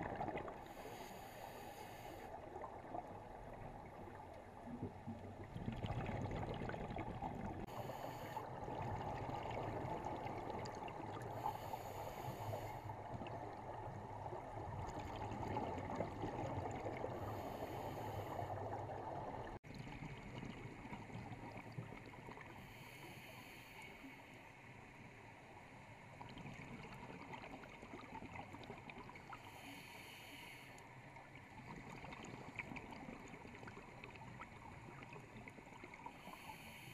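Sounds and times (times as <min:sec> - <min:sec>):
regulator exhalation bubbles gurgling: 0:00.0 - 0:00.9, 0:04.6 - 0:11.7
steady underwater hiss: 0:00.0 - 0:36.9.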